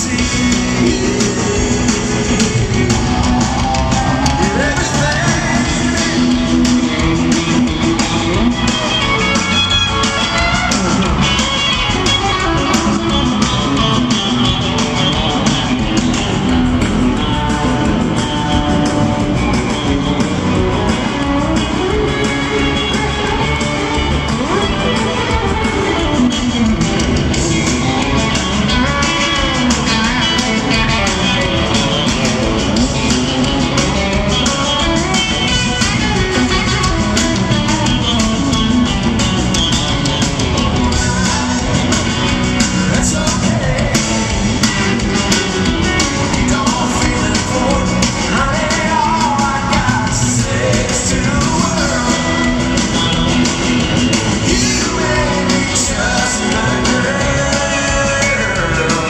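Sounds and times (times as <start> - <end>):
lead vocal singing: 0.0 - 7.1, 40.6 - 53.3, 54.2 - 59.0
live country band: 0.0 - 59.0.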